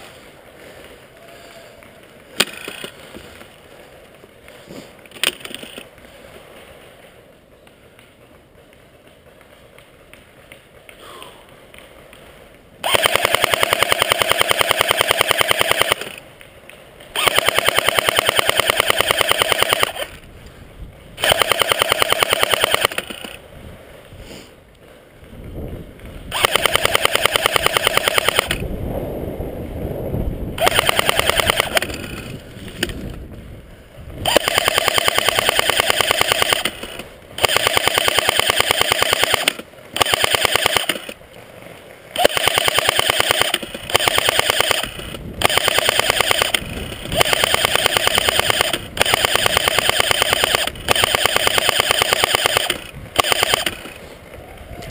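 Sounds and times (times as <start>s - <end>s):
airsoft gun full-auto bursts: 12.8s - 16.2s, 17.1s - 20.2s, 21.2s - 23.4s, 26.3s - 28.6s, 30.6s - 33.0s, 34.2s - 41.2s, 42.1s - 54.0s.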